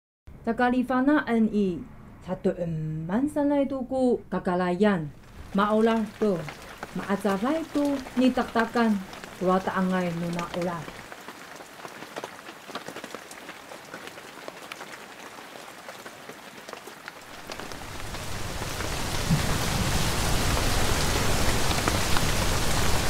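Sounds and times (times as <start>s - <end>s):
heavy downpour: 5.1s - 23.0s
rain pattering: 5.1s - 23.0s.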